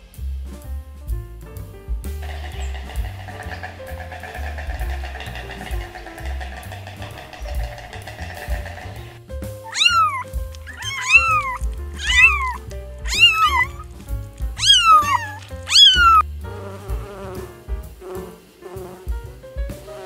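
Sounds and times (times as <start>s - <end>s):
bee buzzing: 2.2s - 9.2s, 15.0s - 19.3s
kittens meowing: 9.6s - 13.9s, 14.5s - 16.2s.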